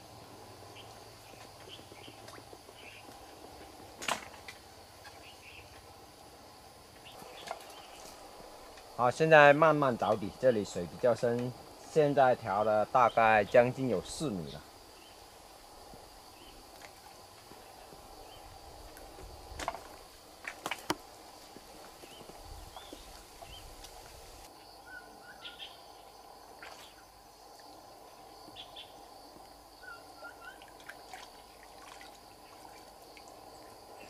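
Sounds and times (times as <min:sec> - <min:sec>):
insect drone: 0:00.0 - 0:34.0
bird chirps: 0:24.8 - 0:25.8.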